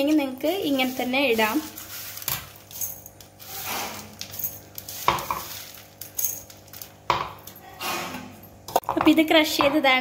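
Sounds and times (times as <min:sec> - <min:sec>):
fried grains scraping over metal: 0:00.0 - 0:06.8.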